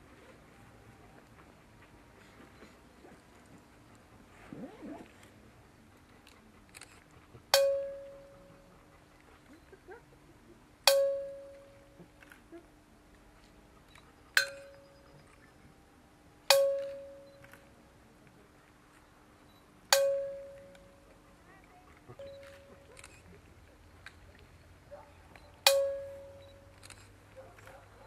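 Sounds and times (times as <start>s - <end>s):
metal bell struck: 16.5s - 17.3s, 25.7s - 26.7s.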